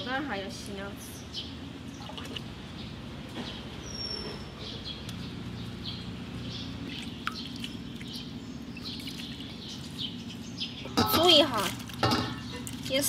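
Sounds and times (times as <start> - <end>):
bird chirps: 1.2 - 11.2
water splashing in steel basin: 2.0 - 2.5, 6.8 - 9.6.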